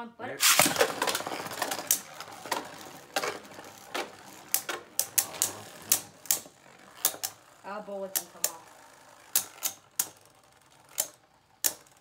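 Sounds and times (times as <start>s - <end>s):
spinning tops clicking together: 0.4s - 12.0s
spinning tops whirring: 0.4s - 12.0s.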